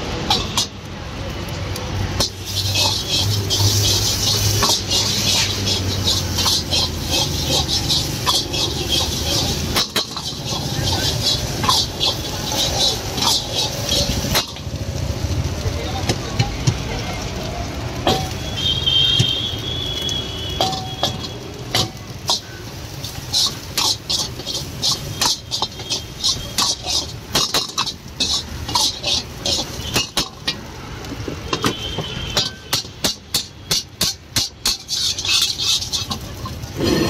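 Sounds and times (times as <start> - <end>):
metal spatula clanking on wok: 0.2 - 0.8, 2.2 - 14.7, 18.0 - 18.4, 20.6 - 30.7, 31.5 - 36.8.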